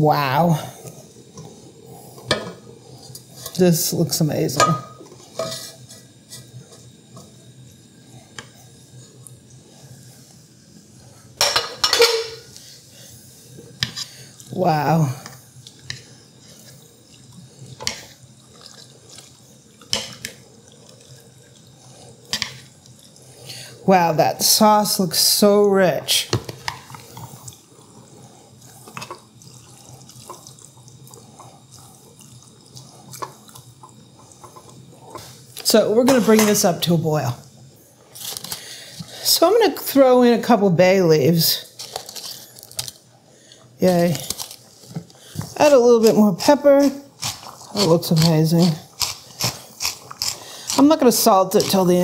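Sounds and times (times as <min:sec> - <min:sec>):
utensil scraping a pot: 0:00.2 - 0:07.3, 0:13.5 - 0:16.8, 0:43.8 - 0:52.0
stew sloshing and bubbling: 0:12.5 - 0:36.4, 0:42.4 - 0:52.0.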